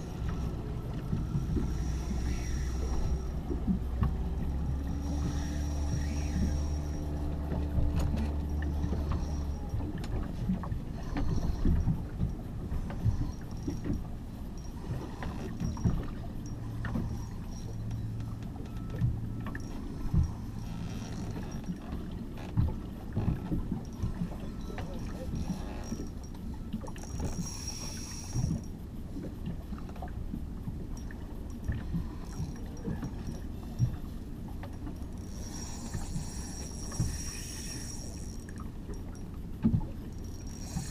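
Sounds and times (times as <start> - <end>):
clicks and creaks: 0.0 - 28.7
boat motor humming: 0.0 - 40.9
water slapping against hull: 0.0 - 40.9
wind: 0.0 - 40.9.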